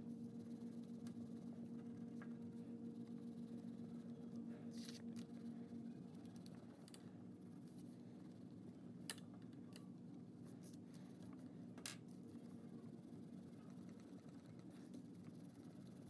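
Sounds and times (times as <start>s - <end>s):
crayon scratching on paper: 12.1s - 16.0s.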